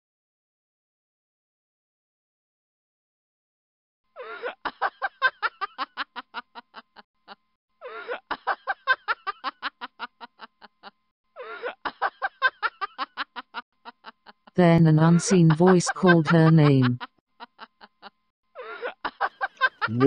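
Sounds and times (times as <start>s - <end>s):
woman laughing: 4.2s - 20.0s.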